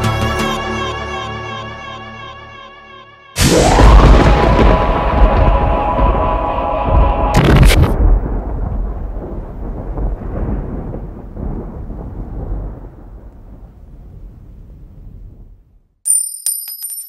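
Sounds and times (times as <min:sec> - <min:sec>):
deep rumbling boom: 0:03.4 - 0:15.7.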